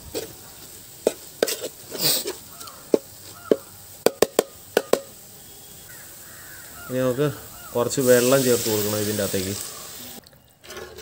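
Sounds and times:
spoon scraping a pot: 1.0s - 3.6s
wooden spoon knocking a pot: 2.9s - 5.2s.

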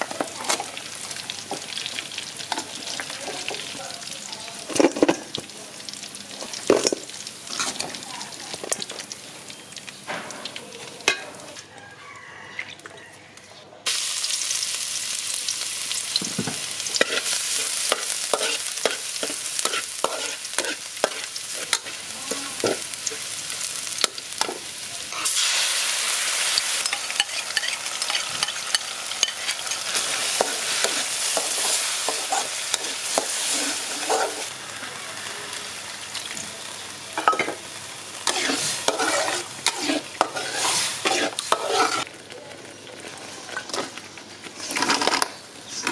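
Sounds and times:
garlic sizzling in hot oil: 0.0s - 11.5s, 13.9s - 45.9s
metal spatula scraping wok: 16.9s - 25.7s, 26.3s - 34.5s, 38.2s - 42.1s, 44.5s - 45.9s.

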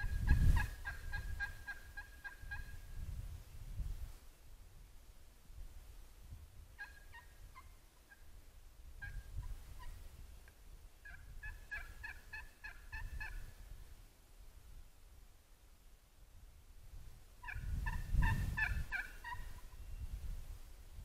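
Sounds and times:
turkey yelping: 0.0s - 2.7s, 6.8s - 8.2s, 11.0s - 13.4s, 17.4s - 19.8s.

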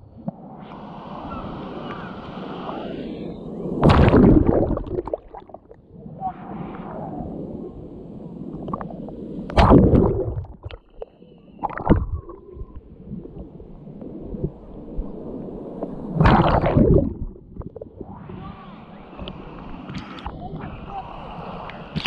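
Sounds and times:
waves breaking and splashing: 0.2s - 22.0s
sea water sloshing and gurgling: 3.8s - 5.9s, 7.5s - 18.4s, 21.3s - 22.0s.

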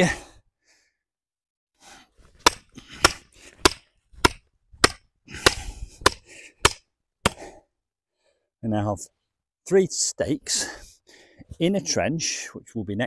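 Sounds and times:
hammer striking wooden stake: 2.3s - 7.5s.

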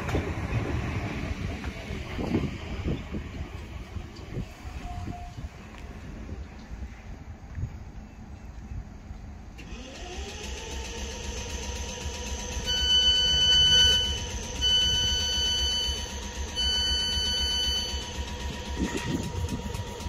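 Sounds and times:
electric train motor whine and hum: 0.0s - 20.0s
door-closing warning beeps: 12.7s - 18.1s.

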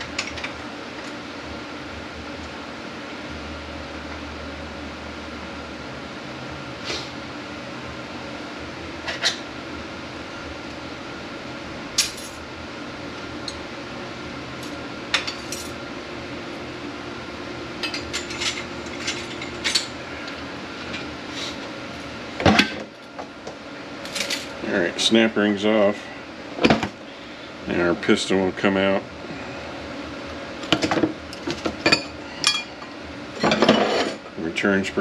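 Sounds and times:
steady background hum: 0.0s - 35.0s
metal tools clinking on steel parts: 17.8s - 19.9s.

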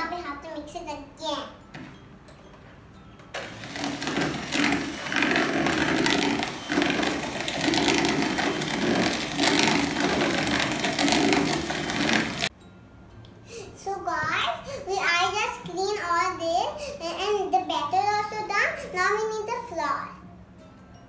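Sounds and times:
electric hand mixer running: 3.4s - 12.5s.

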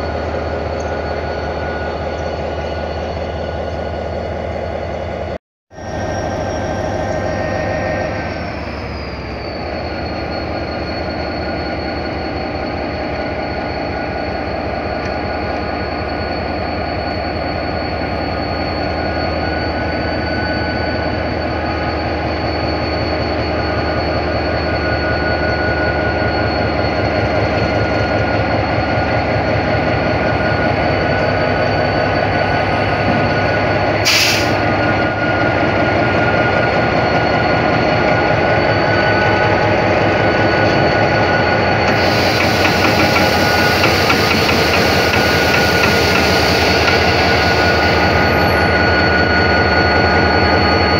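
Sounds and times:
locomotive engine throb: 0.0s - 50.9s
high whine: 5.7s - 50.9s
train hiss and rattle: 34.0s - 34.7s, 41.9s - 48.7s.

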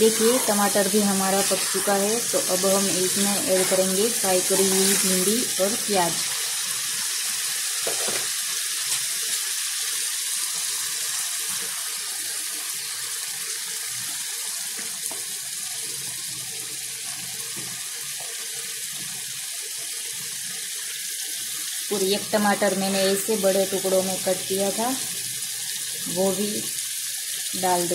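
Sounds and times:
sauce sizzling in a pan: 0.0s - 27.9s
food dropped into pan: 7.8s - 8.3s.

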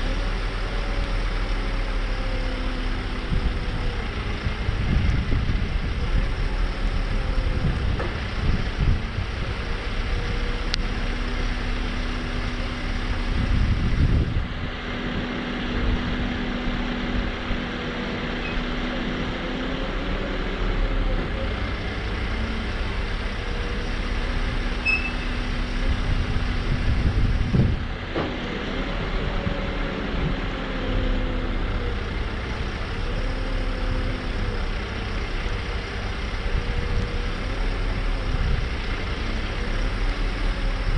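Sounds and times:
diesel engine running: 0.0s - 40.9s
hydraulic drive hum: 17.0s - 40.9s.

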